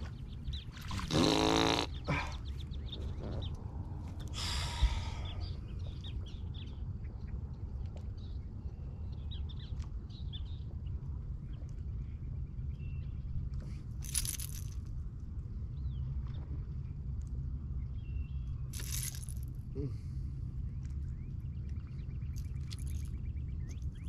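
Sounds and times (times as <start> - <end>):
low steady rumble: 0.0 - 24.0
fish splashing and thrashing: 0.7 - 1.3.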